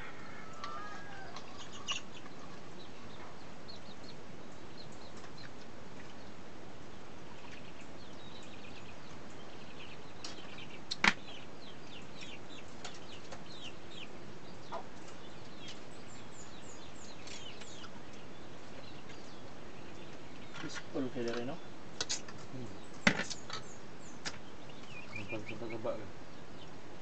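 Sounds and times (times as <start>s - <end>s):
birds chirping: 0.0s - 27.0s.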